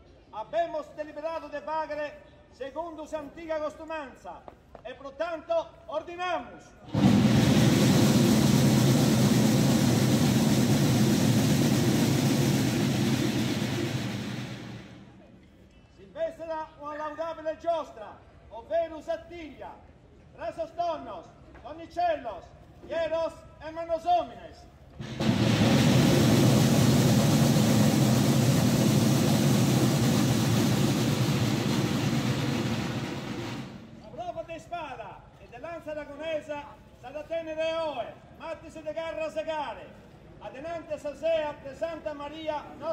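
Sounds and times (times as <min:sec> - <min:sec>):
drum roll: 0:06.9 - 0:15.3, 0:25.0 - 0:34.3.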